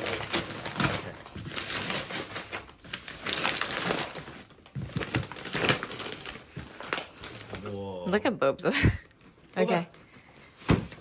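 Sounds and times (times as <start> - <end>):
wrapping paper tearing and rustling: 0.0 - 8.0.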